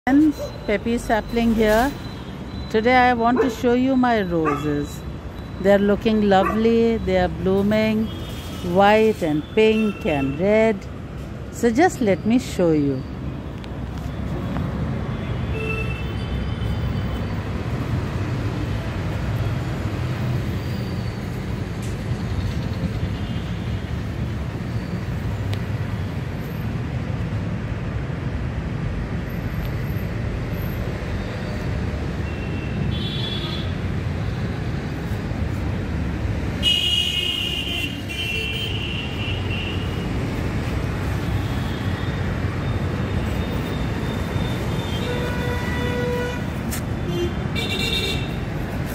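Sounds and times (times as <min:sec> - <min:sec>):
low traffic rumble: 0:00.0 - 0:48.9.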